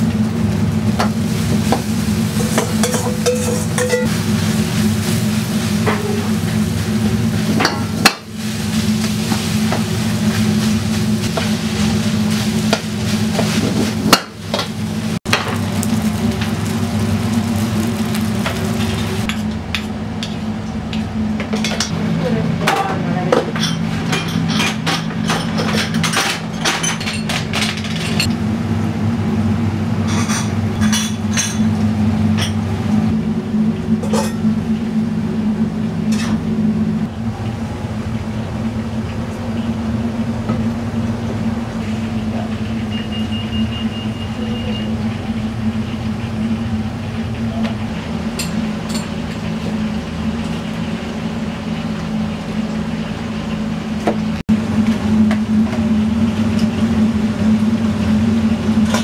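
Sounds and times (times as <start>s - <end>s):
kitchen equipment hum: 0.0s - 59.0s
ceramic dishes clinking: 2.8s - 4.1s.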